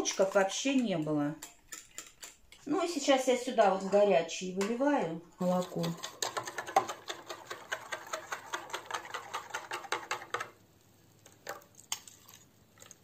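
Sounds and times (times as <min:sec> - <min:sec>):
metal spoon clicking in saucepan: 0:00.8 - 0:02.6.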